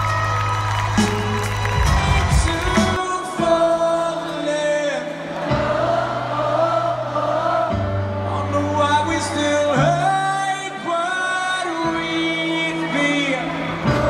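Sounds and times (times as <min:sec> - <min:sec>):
live band playing: 0:00.0 - 0:06.3
person singing: 0:01.1 - 0:14.0.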